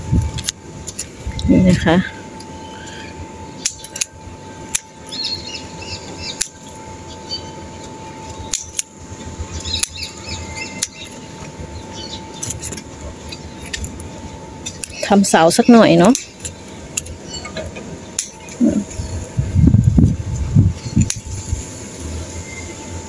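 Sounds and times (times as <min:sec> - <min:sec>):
scissors snipping stems: 0:03.6 - 0:05.2, 0:06.3 - 0:06.8, 0:08.2 - 0:09.0, 0:09.6 - 0:10.1, 0:10.8 - 0:11.2, 0:15.6 - 0:17.2, 0:18.2 - 0:19.0.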